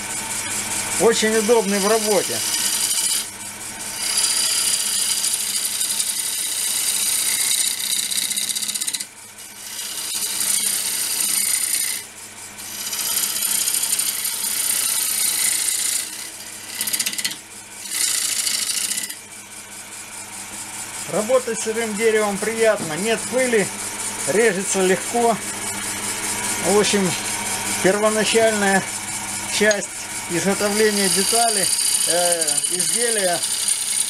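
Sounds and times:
cutter scraping wood on lathe: 0.0 - 34.0
lathe motor humming: 0.0 - 34.0.

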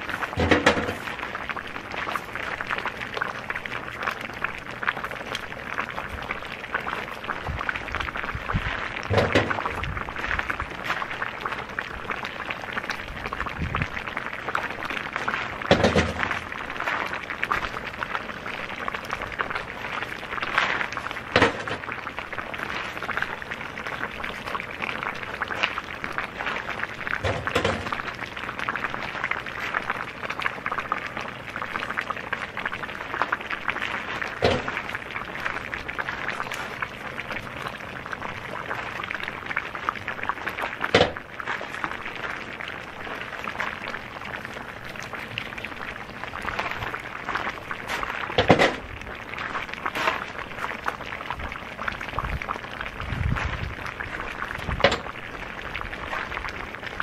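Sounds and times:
crackling hiss: 0.0 - 57.0
stones knocking in cauldron: 0.4 - 1.1, 9.1 - 9.8, 15.7 - 16.5, 21.3 - 21.9, 27.2 - 28.0, 34.4 - 34.8, 40.9 - 41.8, 47.7 - 48.9, 54.6 - 55.1.

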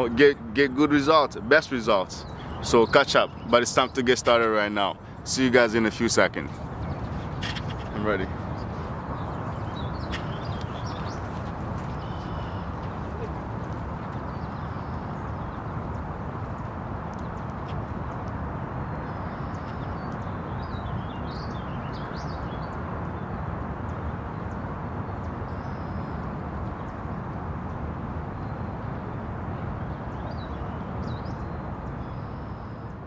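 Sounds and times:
birds chirping: 0.0 - 18.2, 18.8 - 33.0
steady rushing background noise: 0.0 - 33.0.

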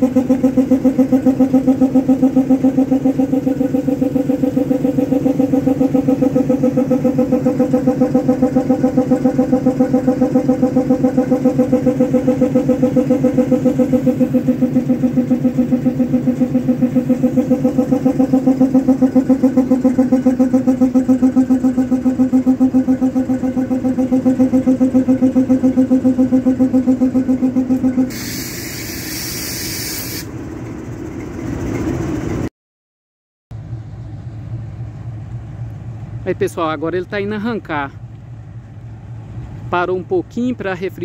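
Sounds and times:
air compressor pulsing drone: 0.0 - 32.5
air hissing: 28.1 - 30.4.

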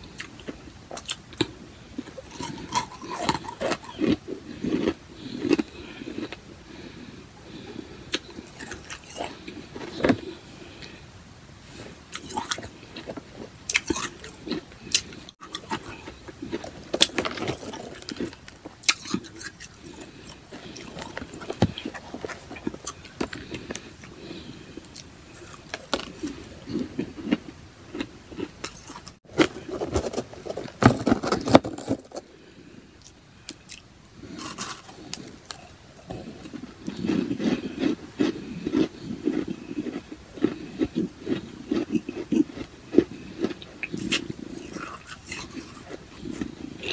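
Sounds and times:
chewing and crunching ice: 0.0 - 11.0, 11.7 - 46.9.

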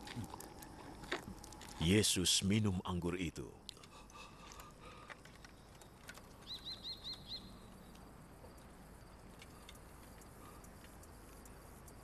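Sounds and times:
faint outdoor ambience: 0.0 - 12.0
bird chirping: 5.6 - 8.0.

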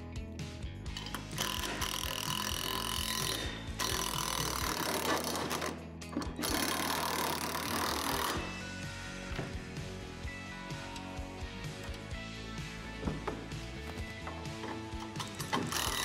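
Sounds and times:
power driver tightening bolt: 1.0 - 8.5, 13.0 - 16.0.

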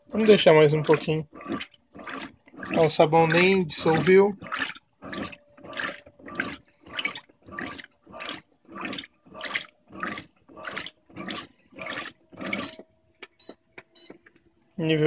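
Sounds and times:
washer water sloshing: 0.0 - 13.6.

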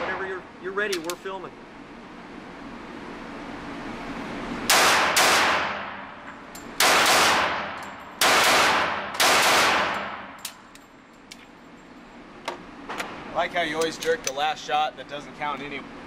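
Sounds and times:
pistol shots reverberating indoors: 4.7 - 10.4.

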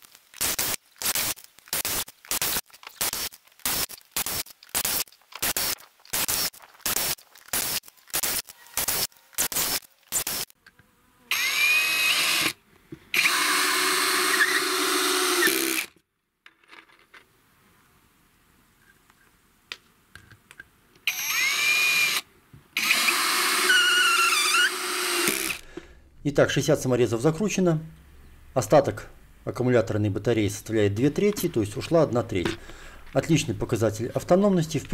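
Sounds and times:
cordless drill driving screws: 11.3 - 15.9, 21.0 - 22.2, 22.8 - 25.6.

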